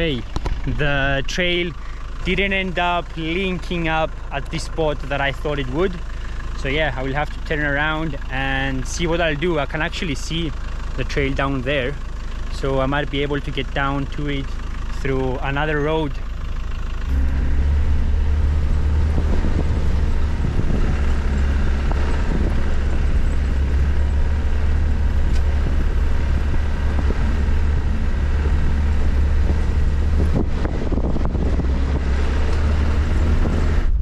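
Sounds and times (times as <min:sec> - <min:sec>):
vehicle knocks and rattles: 0:00.0 - 0:00.9, 0:15.8 - 0:33.9
diesel engine droning: 0:00.0 - 0:34.0.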